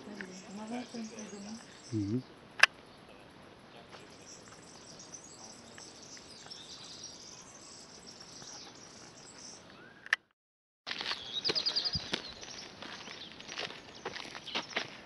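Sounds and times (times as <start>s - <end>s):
insects: 0.0s - 10.0s, 10.9s - 15.0s
light background hiss: 0.0s - 10.1s
bird chirps: 0.0s - 10.3s, 11.0s - 15.0s.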